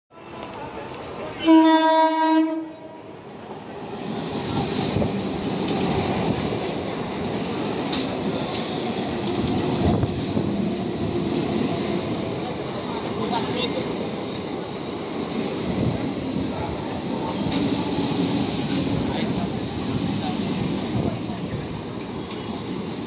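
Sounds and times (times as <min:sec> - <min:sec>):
train rumbling past: 0:00.1 - 0:23.0
train horn blast: 0:01.4 - 0:03.1.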